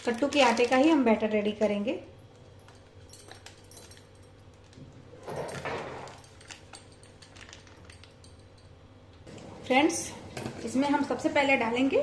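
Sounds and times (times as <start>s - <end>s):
plastic packet crinkling: 0.0s - 1.2s, 6.1s - 8.1s.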